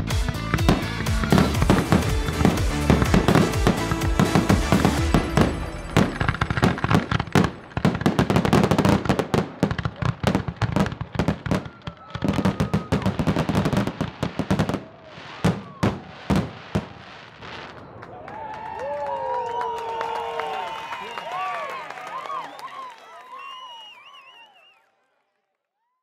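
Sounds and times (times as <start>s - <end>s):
fireworks bursting and crackling: 0.0s - 19.6s.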